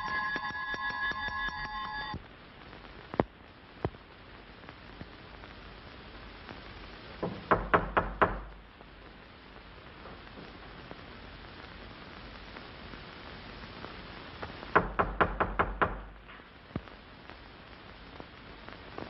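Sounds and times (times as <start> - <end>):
doorbell ringing: 0.0 - 2.2
film soundtrack hiss: 0.0 - 19.0
knocking on a door: 7.2 - 8.5, 14.8 - 16.0.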